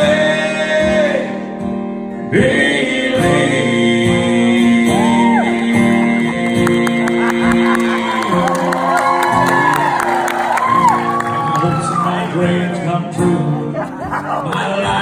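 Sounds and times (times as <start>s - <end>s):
strummed acoustic guitar: 0.0s - 15.0s
audience whooping and clapping: 6.4s - 12.4s.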